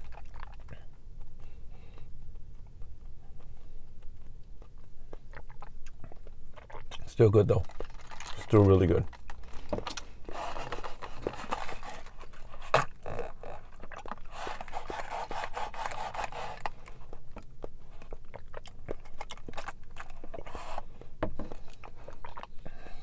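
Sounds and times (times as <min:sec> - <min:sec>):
wet clicks of chewing: 0:00.0 - 0:10.1, 0:10.8 - 0:15.0, 0:16.6 - 0:22.8
sipping through a straw: 0:09.6 - 0:17.0
straw scraping through cup lid: 0:10.3 - 0:12.8, 0:14.3 - 0:16.7.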